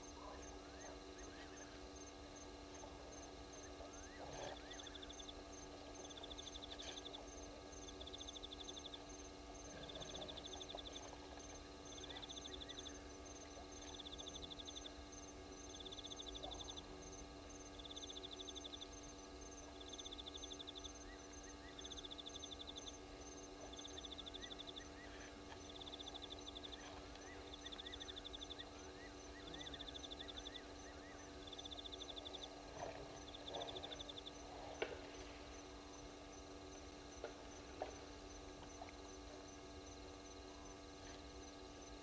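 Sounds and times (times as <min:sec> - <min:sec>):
faint electrical hum: 0:00.0 - 0:42.0
high-pitched insect chirping: 0:17.6 - 0:25.0.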